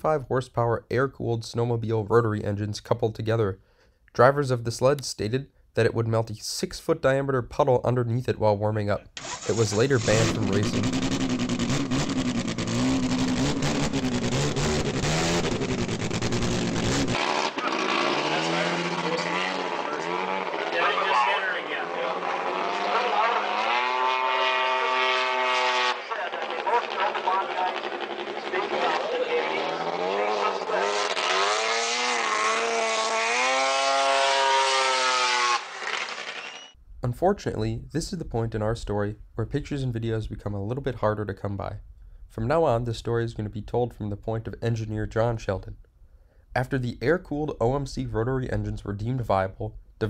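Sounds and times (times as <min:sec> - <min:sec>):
snowmobile engine revving: 0:09.2 - 0:36.8.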